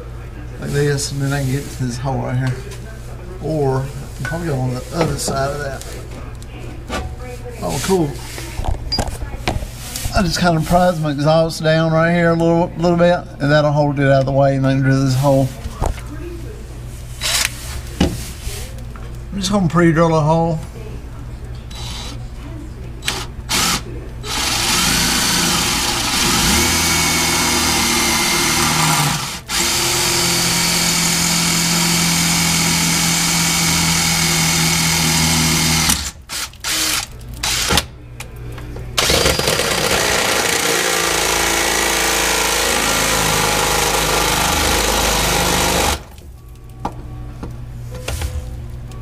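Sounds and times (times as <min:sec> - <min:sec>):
power drill drilling metal: 0:23.0 - 0:37.7, 0:39.0 - 0:46.1.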